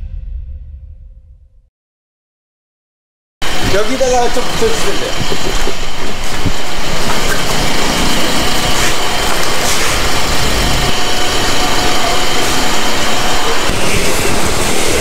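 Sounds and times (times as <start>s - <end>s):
street traffic noise: 3.4s - 15.0s
vehicle engine running: 3.4s - 15.0s.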